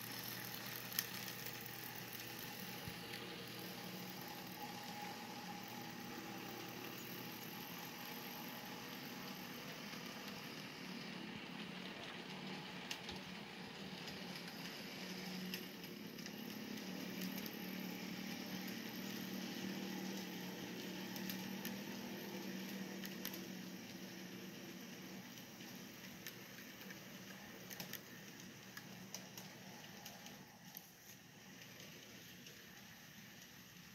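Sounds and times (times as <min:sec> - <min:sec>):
model train wheels humming on track: 0:00.0 - 0:33.9.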